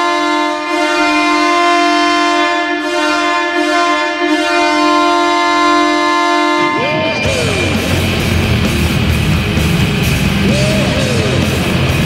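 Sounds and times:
arena goal horn blast: 0.0s - 8.0s.

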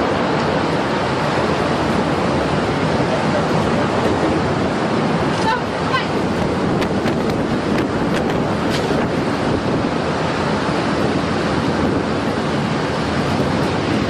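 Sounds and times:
wind blasting the microphone: 0.0s - 14.0s.

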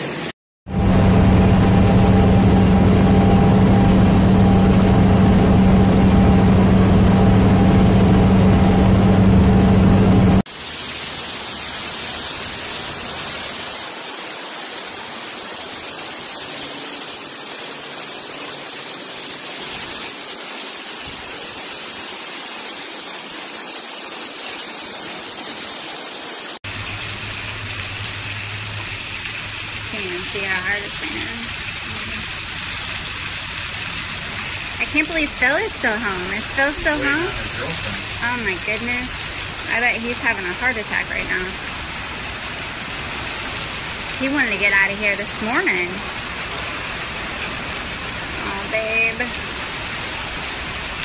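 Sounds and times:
heavy rain pouring: 0.0s - 51.0s
vehicle engine and road noise: 0.7s - 10.5s, 26.7s - 44.9s.

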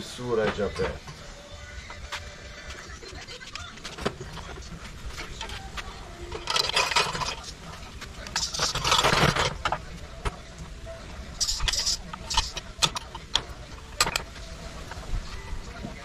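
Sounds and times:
metal clinks and scrapes: 3.9s - 10.3s, 11.2s - 15.5s.

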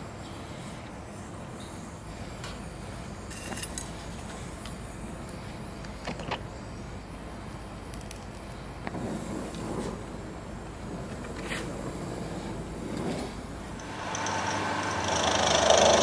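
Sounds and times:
torch flame hissing: 0.0s - 16.0s.

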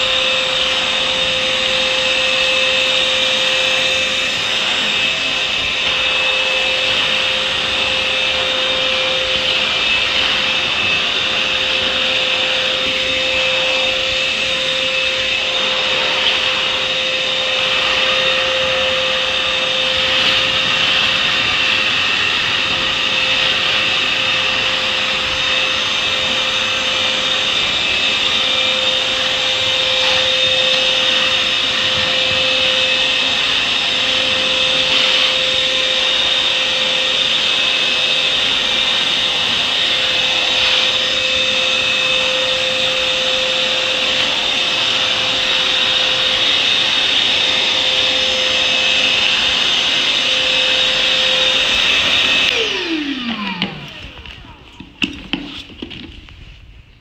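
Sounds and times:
vacuum motor winding down: 0.0s - 56.1s
wet and dry vacuum running: 0.0s - 56.6s.

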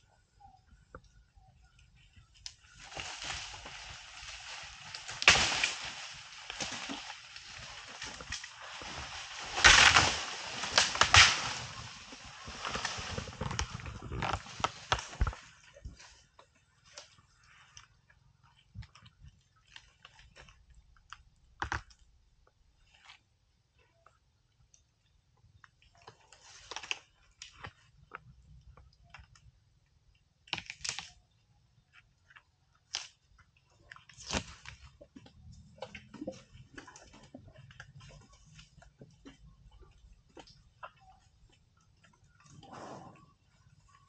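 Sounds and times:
vegetation rustling: 2.0s - 17.9s
plants snapping and cracking: 2.4s - 15.5s, 18.8s - 22.1s, 30.4s - 31.3s, 32.8s - 39.4s
elephant crunching twigs: 2.4s - 17.9s, 32.3s - 44.0s.

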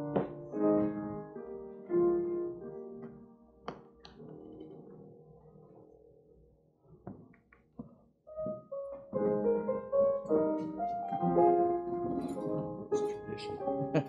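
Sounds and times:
keyboard notes and chords: 0.0s - 5.0s.

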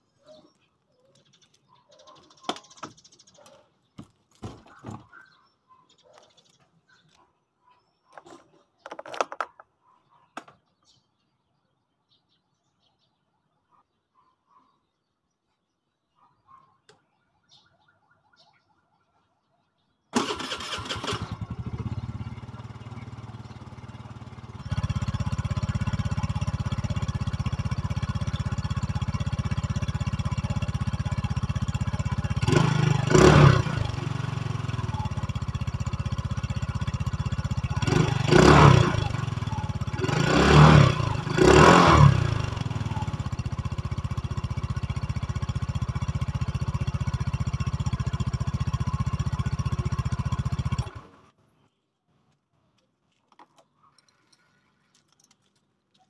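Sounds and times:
scooter engine idling: 20.2s - 51.3s
scooter engine revving: 20.2s - 51.3s.

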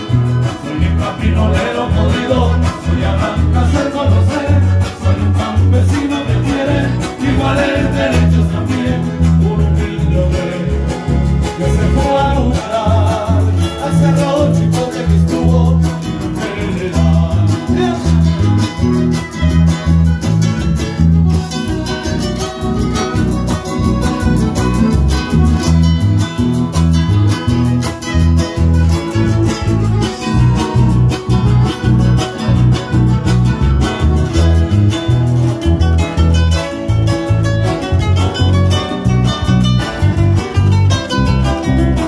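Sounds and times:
man singing: 0.0s - 18.9s, 40.1s - 42.0s
bouncing bass line: 0.0s - 42.0s
folk band playing: 0.0s - 42.0s.

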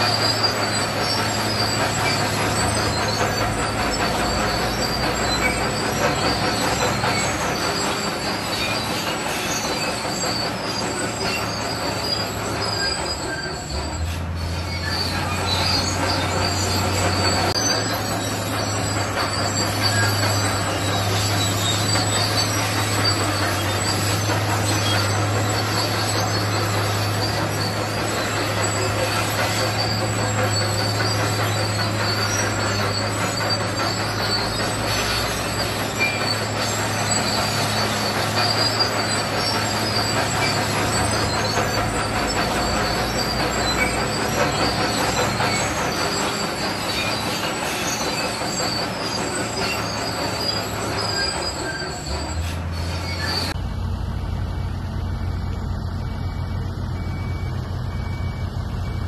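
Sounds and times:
bulldozer diesel engine under load: 0.0s - 59.0s
steel tracks squealing and clanking: 0.0s - 59.0s.

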